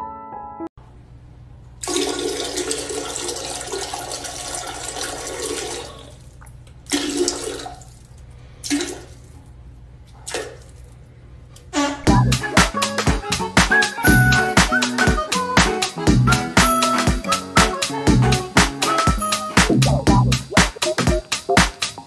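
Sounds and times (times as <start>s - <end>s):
water rushing in toilet bowl: 1.8s - 6.2s.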